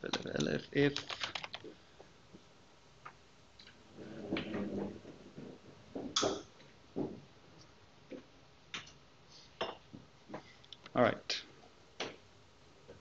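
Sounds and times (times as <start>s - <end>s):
computer keyboard key clicks: 0.1s - 1.6s.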